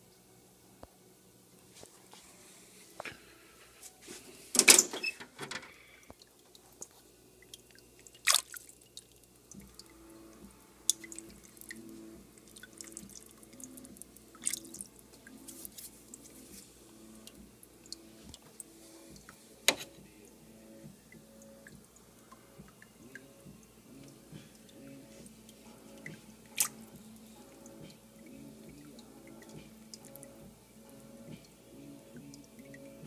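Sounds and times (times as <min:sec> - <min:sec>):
water splashing and dripping: 0:06.1 - 0:16.4, 0:17.2 - 0:19.4, 0:21.1 - 0:30.4.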